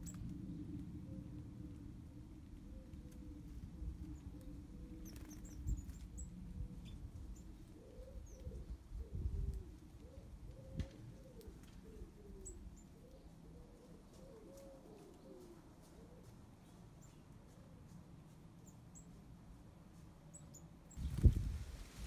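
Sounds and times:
small birds chirping: 0.0 - 0.3, 2.6 - 21.6
pigeons cooing: 2.6 - 5.5, 6.6 - 16.4.

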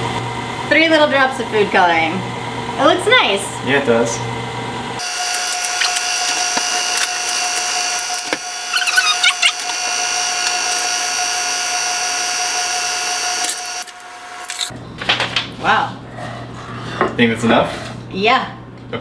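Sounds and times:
stand mixer whining: 3.6 - 14.7.

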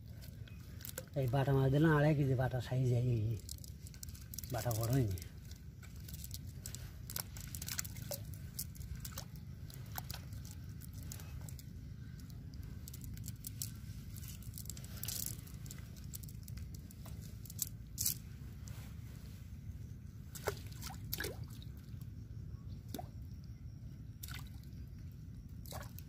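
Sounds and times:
steady low rumble: 0.0 - 26.0
wet squelches and slaps: 20.3 - 21.8.

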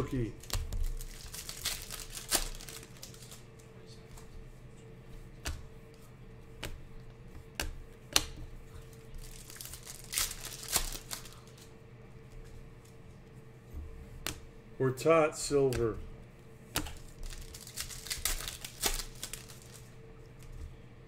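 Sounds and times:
plastic wrappers crinkling and tearing: 0.0 - 3.5, 8.9 - 11.7, 16.9 - 19.9.

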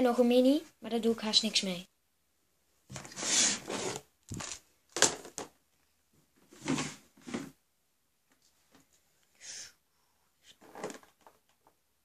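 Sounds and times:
plastic scrape on table: 2.9 - 4.6
plastic knocks and clatters: 4.3 - 5.6, 10.6 - 11.8.

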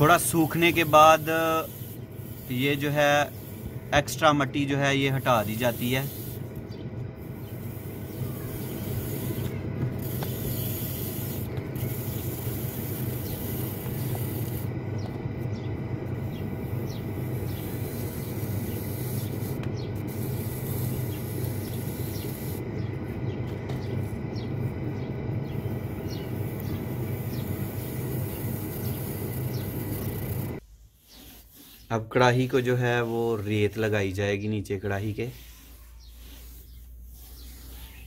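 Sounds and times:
scraper scraping clay pot: 0.0 - 23.8, 25.7 - 38.0
low hum: 3.2 - 30.6.

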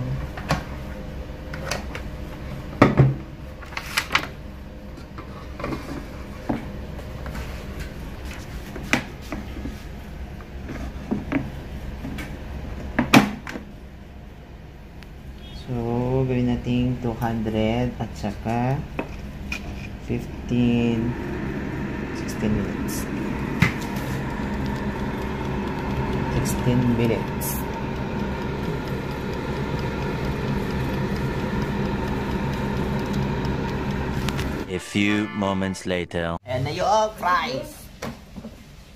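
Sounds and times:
air fryer fan whirring: 0.0 - 34.7
mechanical timer ticking: 20.5 - 34.7.

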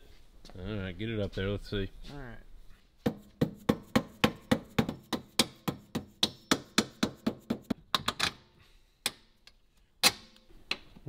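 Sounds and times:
hammer tapping on metal: 3.1 - 7.8.

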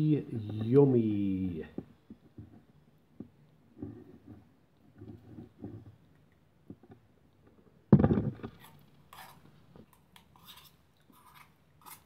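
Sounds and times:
clinks and scrapes of handling: 2.1 - 7.0, 8.2 - 12.0.

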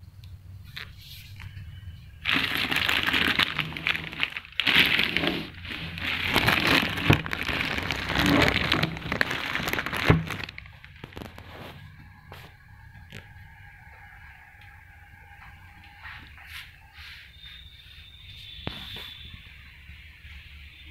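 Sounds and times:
plastic bag crinkling: 2.2 - 11.9.

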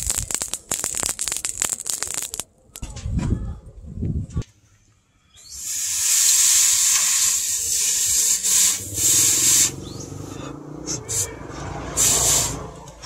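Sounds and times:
hot blade hissing in water: 5.4 - 9.8, 12.0 - 12.6.

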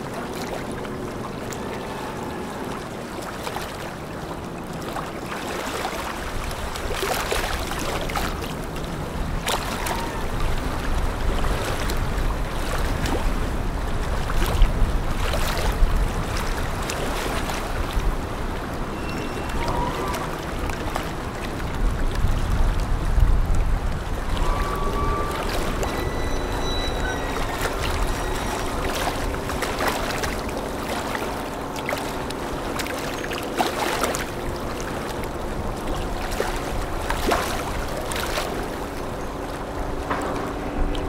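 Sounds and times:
rushing water: 0.0 - 41.0
wind noise: 8.9 - 30.4.

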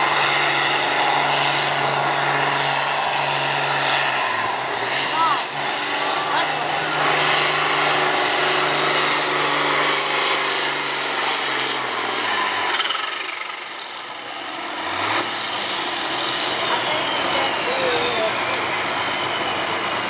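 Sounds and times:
tractor diesel engine under load: 0.0 - 20.0
high whistle sliding downward: 14.0 - 20.0.

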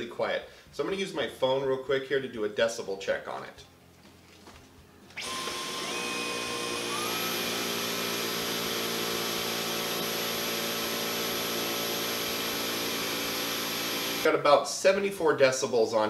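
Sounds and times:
vacuum cleaner motor whine: 5.2 - 14.3.

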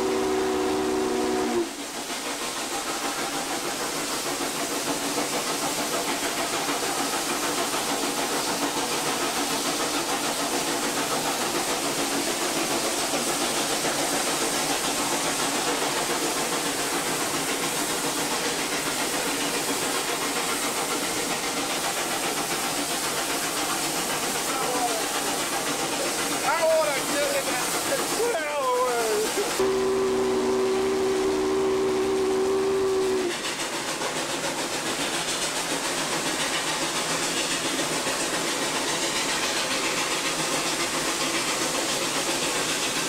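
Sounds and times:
steam whistle chord: 0.0 - 1.7, 29.6 - 33.3
steam locomotive running: 0.0 - 43.0.

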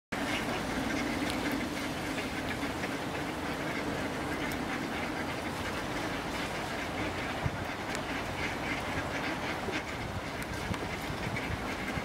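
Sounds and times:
ducks quacking: 0.2 - 12.0
steady background noise: 0.2 - 12.0.

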